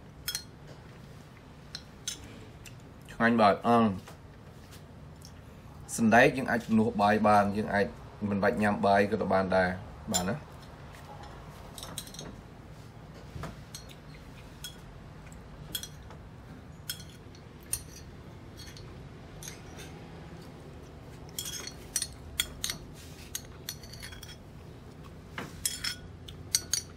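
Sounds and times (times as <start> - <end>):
metal spoon clinking on ceramic: 0.2 - 0.5, 15.7 - 16.1, 16.8 - 20.0, 21.3 - 24.4, 25.6 - 26.9.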